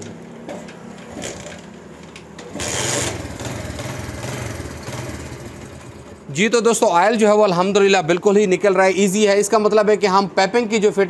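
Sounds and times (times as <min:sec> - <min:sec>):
motorcycle engine starting and idling: 0:02.5 - 0:06.2.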